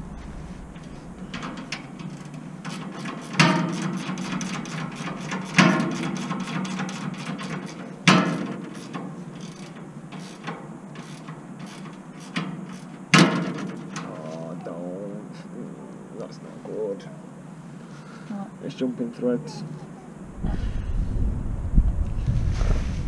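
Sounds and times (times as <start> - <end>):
ratchet spanner clicking: 8.8 - 13.0.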